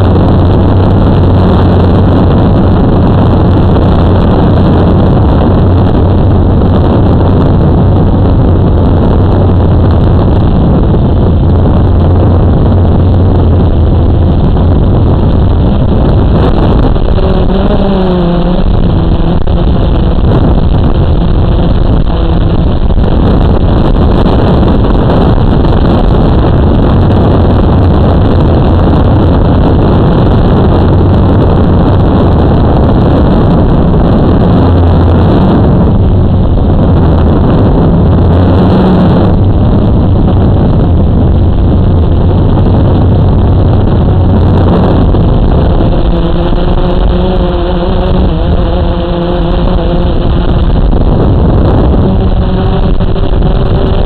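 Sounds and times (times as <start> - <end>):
higher whining motor tones: 0.0 - 54.0
quadcopter motors droning: 10.5 - 27.8, 44.2 - 54.0.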